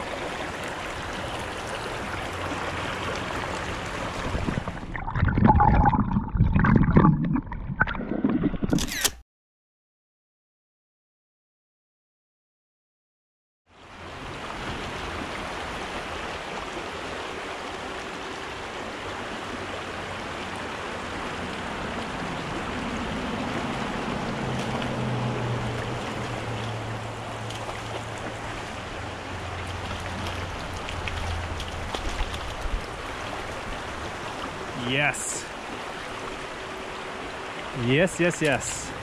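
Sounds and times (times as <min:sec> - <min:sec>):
creek running over rocks: 0:00.0 - 0:05.6, 0:13.8 - 0:39.0
highway traffic hum: 0:19.0 - 0:39.0.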